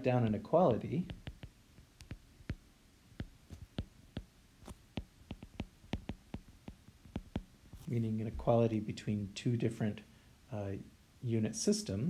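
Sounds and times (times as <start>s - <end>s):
stylus tapping on glass screen: 1.0s - 7.9s.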